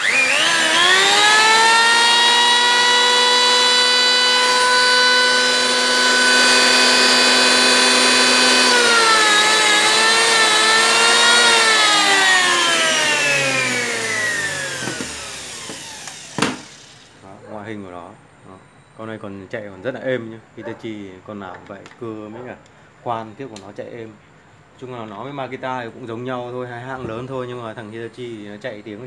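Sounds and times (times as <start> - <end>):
electric hand planer whining: 0.0 - 17.1.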